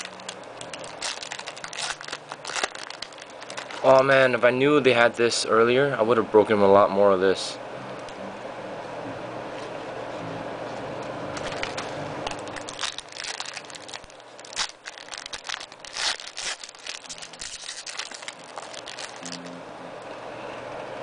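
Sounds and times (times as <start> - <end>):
foil wrapper crinkling: 0.0 - 4.3, 11.4 - 19.5.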